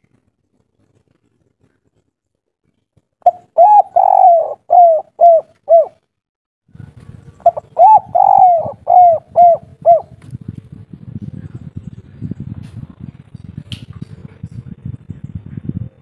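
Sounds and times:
dove cooing: 3.2s - 6.0s, 7.4s - 10.2s.

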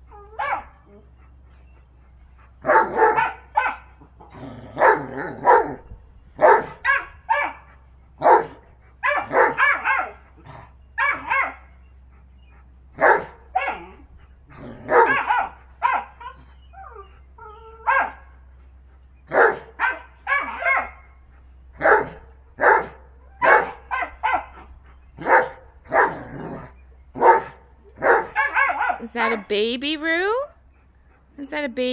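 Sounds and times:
dogs barking: 0.0s - 18.5s, 19.2s - 29.6s.

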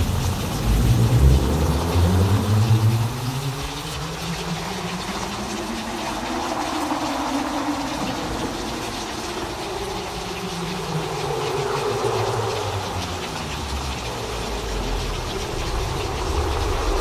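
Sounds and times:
rain-like hiss: 0.0s - 17.0s
synthesized thunder rumble: 14.8s - 17.0s.

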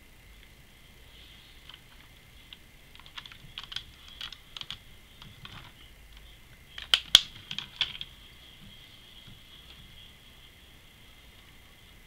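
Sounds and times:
fingers clicking on toy car: 1.6s - 5.8s, 6.7s - 8.1s.

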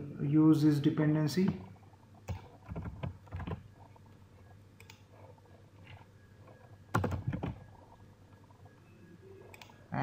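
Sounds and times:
mouse and keyboard clicks: 4.8s - 5.1s.

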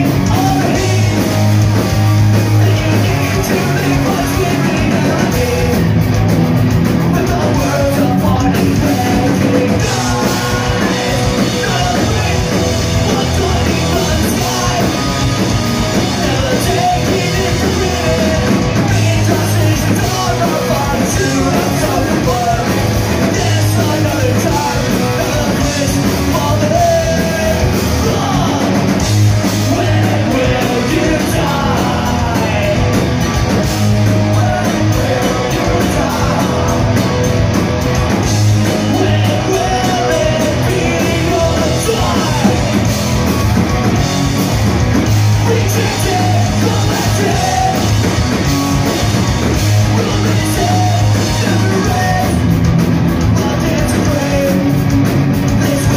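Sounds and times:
punk rock band playing: 0.0s - 55.9s
singer shouting vocals: 16.0s - 33.0s, 38.7s - 42.8s, 45.3s - 48.0s, 49.8s - 52.4s.

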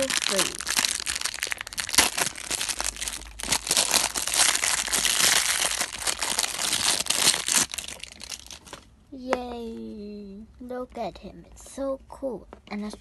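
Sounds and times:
plastic wrapper crinkling: 0.0s - 9.0s.

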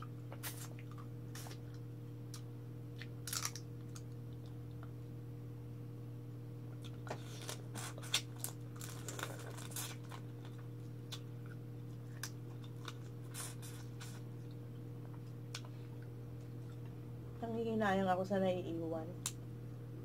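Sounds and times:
steady low hum: 0.0s - 20.0s
crab shell cracking and sucking: 2.3s - 4.2s, 6.9s - 14.6s.

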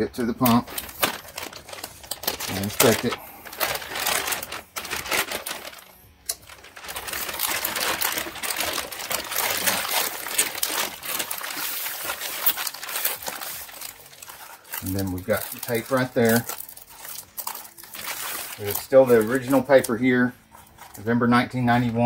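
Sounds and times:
plastic bag crinkling: 0.1s - 21.1s.

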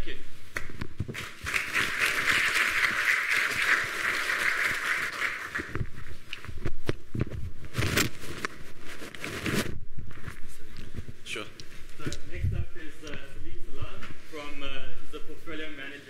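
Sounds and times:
audience applauding: 1.1s - 5.9s.

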